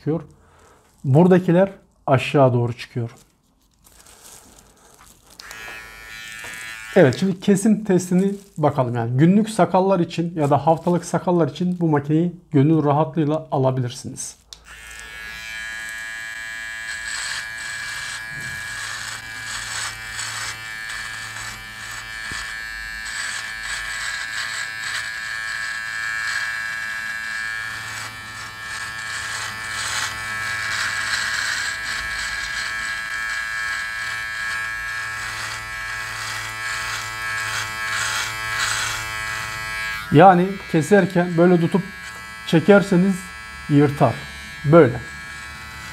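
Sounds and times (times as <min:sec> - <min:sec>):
beard trimmer buzzing: 0:04.1 - 0:08.3, 0:14.5 - 0:45.9
trimmer blade cutting hair: 0:05.3 - 0:07.5, 0:14.5 - 0:45.9.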